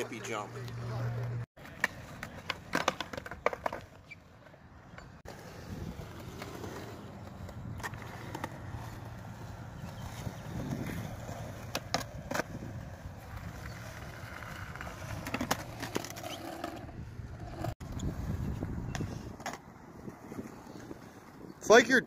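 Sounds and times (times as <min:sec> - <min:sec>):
skateboard wheels rolling on concrete: 0:00.0 - 0:22.0
skateboard clacking on ground: 0:01.6 - 0:05.4, 0:10.0 - 0:17.7.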